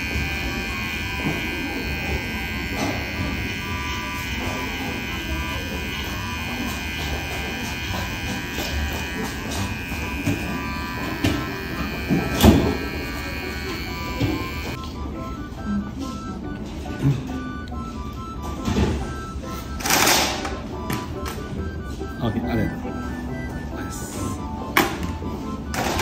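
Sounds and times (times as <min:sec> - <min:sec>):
electric hair trimmer buzzing: 0:00.0 - 0:14.8.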